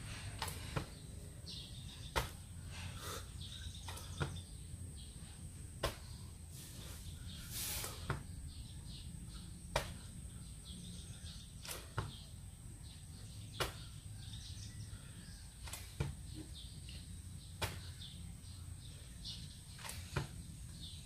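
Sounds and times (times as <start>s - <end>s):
thumps and slaps of burpees: 0.3s - 1.1s, 2.0s - 2.6s, 3.8s - 4.6s, 5.7s - 6.3s, 7.9s - 8.3s, 9.7s - 10.2s, 11.6s - 12.4s, 13.5s - 14.1s, 15.6s - 16.6s, 17.5s - 18.1s, 19.7s - 20.4s.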